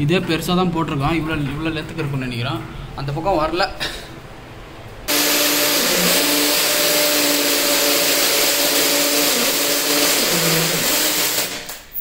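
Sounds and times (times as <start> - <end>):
cordless drill grinding on wall: 5.1 - 11.9.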